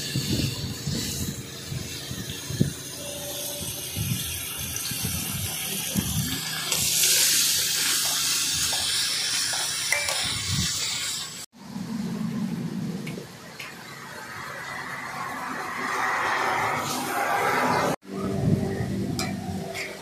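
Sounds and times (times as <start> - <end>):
meat sizzling in oil: 0.0 - 11.5.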